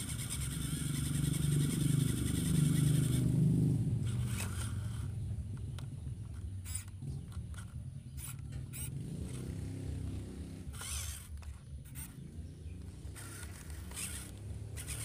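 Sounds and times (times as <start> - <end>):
small electric motor humming: 0.0 - 5.5, 6.4 - 15.0
tyres scraping dirt: 4.0 - 5.2, 6.3 - 15.0.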